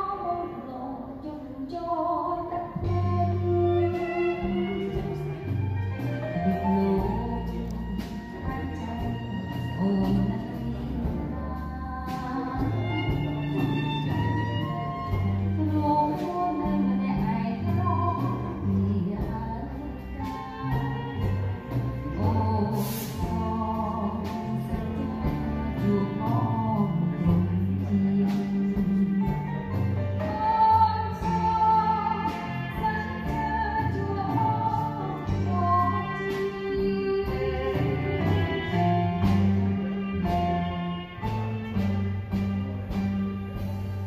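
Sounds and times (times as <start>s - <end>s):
woman singing: 0.0s - 43.4s
band playing: 2.6s - 44.0s
steady drum beat: 2.8s - 44.0s.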